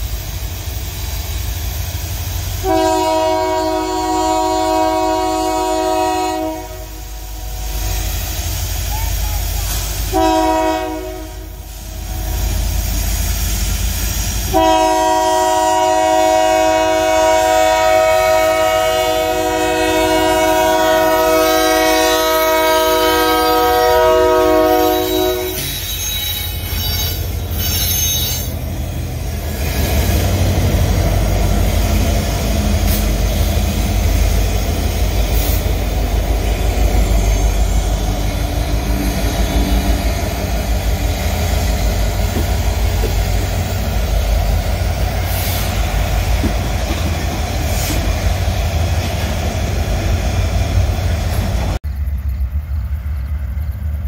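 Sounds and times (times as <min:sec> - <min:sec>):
train rumbling on rails: 0:00.0 - 0:54.0
locomotive air horn blasts: 0:02.6 - 0:08.2, 0:10.1 - 0:11.8, 0:14.5 - 0:28.6.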